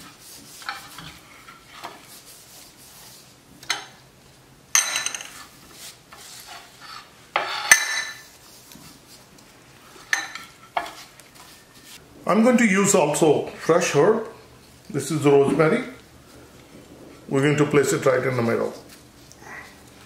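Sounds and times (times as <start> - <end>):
soft rubbing: 0.0 - 3.5, 5.3 - 12.0.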